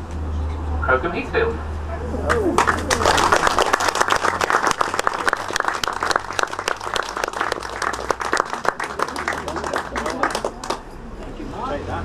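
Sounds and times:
group applauding: 0:02.2 - 0:11.0.

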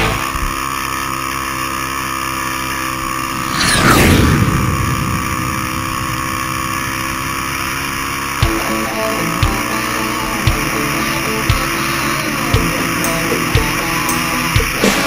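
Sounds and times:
atv engine running: 0:00.0 - 0:03.4, 0:06.9 - 0:15.0
rushing sweep: 0:03.1 - 0:08.6.

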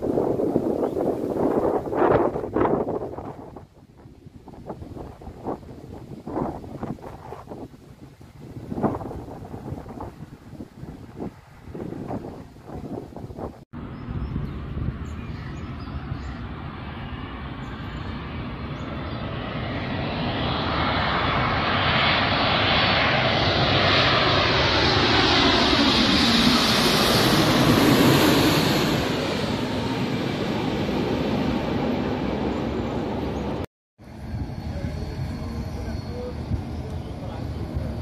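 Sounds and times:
jet airliner passing overhead: 0:00.0 - 0:38.0.

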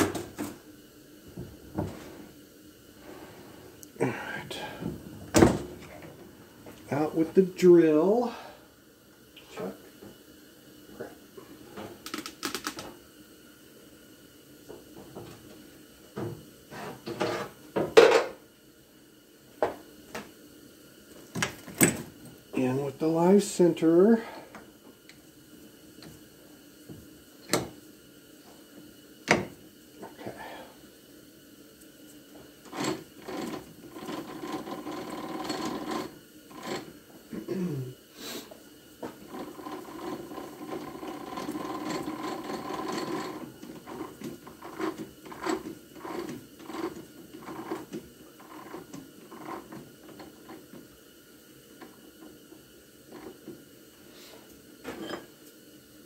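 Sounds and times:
small rapid clicks: 0:12.0 - 0:12.8.

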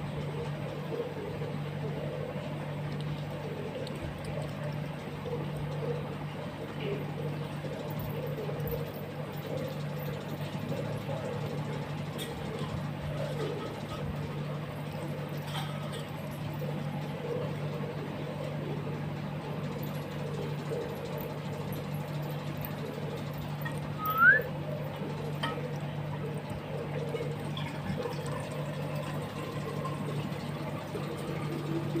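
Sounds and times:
whistle-like chirp: 0:24.0 - 0:24.5.

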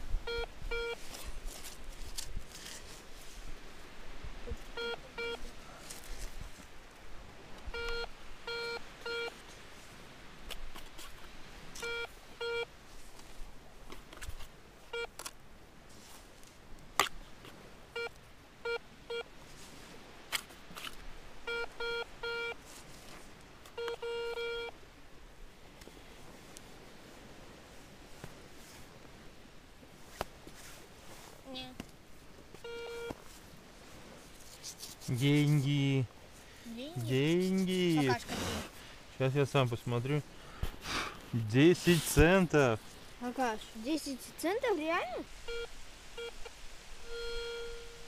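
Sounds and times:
metal detector beeps: 0:00.3 - 0:01.0, 0:04.8 - 0:05.5, 0:07.7 - 0:09.4, 0:11.8 - 0:12.7, 0:21.5 - 0:22.6, 0:23.7 - 0:24.7, 0:32.6 - 0:33.2, 0:45.5 - 0:48.0
sand scraped by hand: 0:33.3 - 0:38.8, 0:40.8 - 0:42.5.

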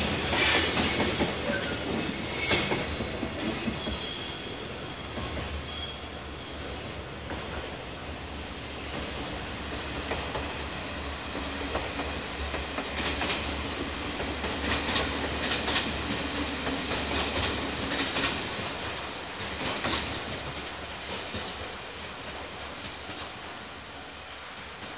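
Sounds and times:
train wheels clacking: 0:00.0 - 0:08.1, 0:08.8 - 0:23.7.

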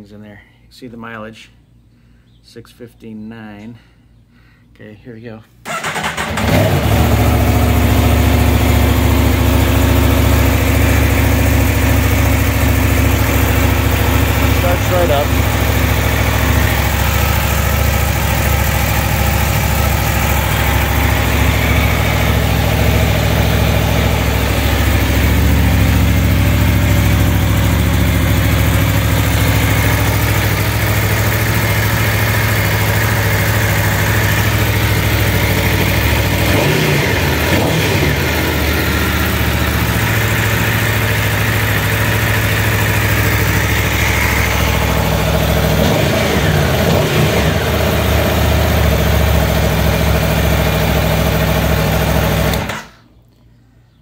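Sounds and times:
motorcycle engine idling: 0:05.7 - 0:52.8.

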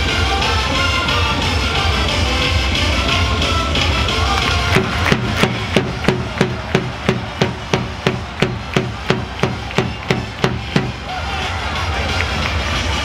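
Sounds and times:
crowd clapping in unison: 0:04.2 - 0:13.0.

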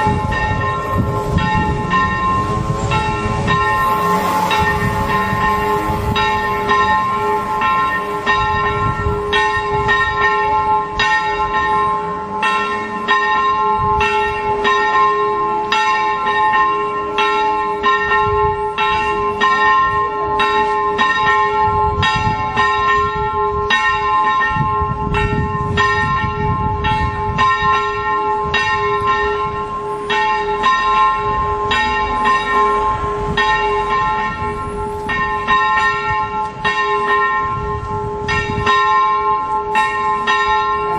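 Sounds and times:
church bells pealing: 0:00.0 - 0:40.9.

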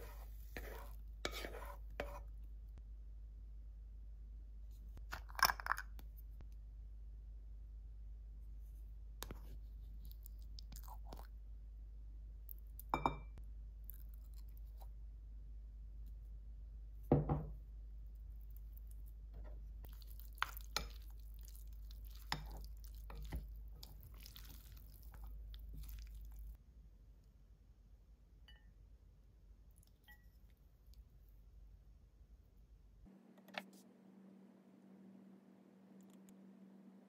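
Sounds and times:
wooden spoons scraping pasta: 0:00.0 - 0:02.3, 0:18.9 - 0:26.6.

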